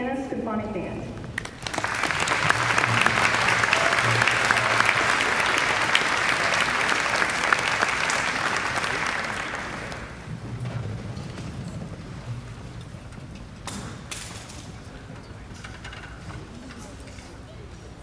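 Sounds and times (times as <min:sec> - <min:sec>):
audience applauding: 0:01.3 - 0:10.4.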